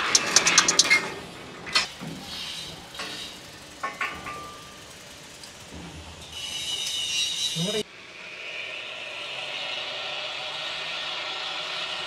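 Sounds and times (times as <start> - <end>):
clicks: 0.0 - 1.1
wheels rolling on steel rope: 0.0 - 7.9
high whir with squealing ring: 2.2 - 12.0.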